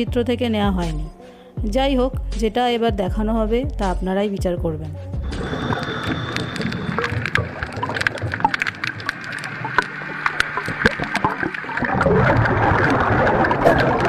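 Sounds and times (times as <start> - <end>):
rushing bubbling water: 5.2 - 14.0
underwater clicks and crackles: 5.3 - 14.0.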